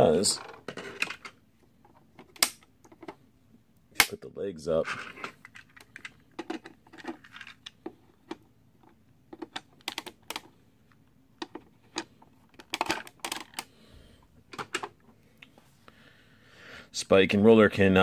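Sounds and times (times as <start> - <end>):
plastic toy parts clicking: 9.3 - 10.5, 11.4 - 13.7.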